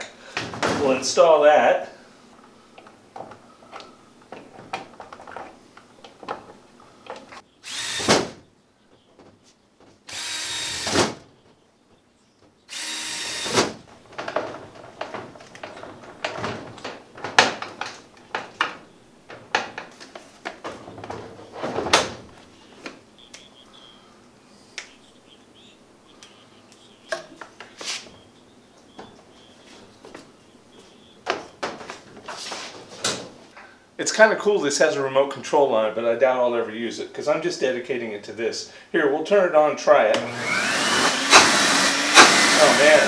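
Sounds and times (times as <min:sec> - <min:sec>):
cordless drill driving screws: 0:07.6 - 0:08.2, 0:10.1 - 0:11.0, 0:12.7 - 0:13.7, 0:40.2 - 0:43.0.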